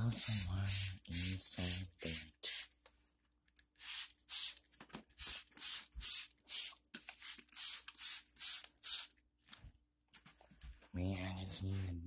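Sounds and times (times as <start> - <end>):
spray bottle squirts: 0.2 - 2.7, 3.8 - 9.2.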